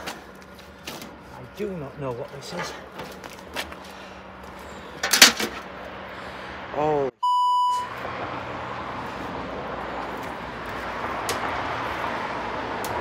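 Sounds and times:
censor bleep: 7.2 - 8.0.

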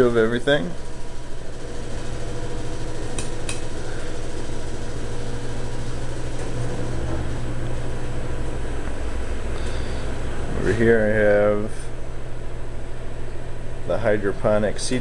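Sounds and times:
mechanical hum and whir: 0.0 - 15.0
sharp light clicks: 3.1 - 3.7.

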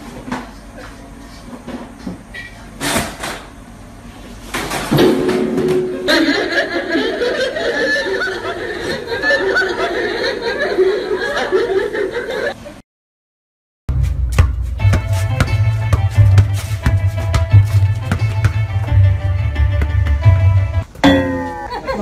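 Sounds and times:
group laughing: 5.9 - 12.8, 21.4 - 22.0.

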